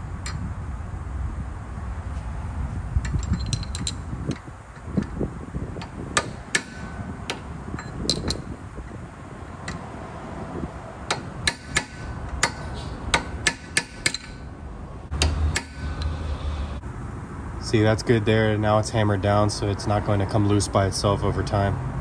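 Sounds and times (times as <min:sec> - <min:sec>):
hammer tapping metal punch: 0:05.8 - 0:08.6, 0:11.0 - 0:14.5, 0:15.1 - 0:16.1.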